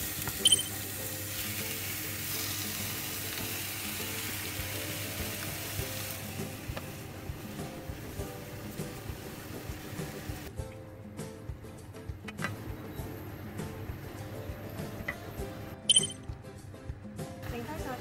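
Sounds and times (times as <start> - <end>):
fish sizzling in hot oil: 0.0 - 10.5.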